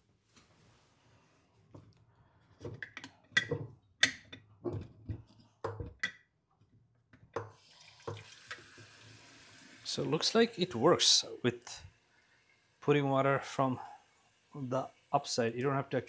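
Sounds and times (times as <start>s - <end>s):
tap water running: 7.1s - 16.0s.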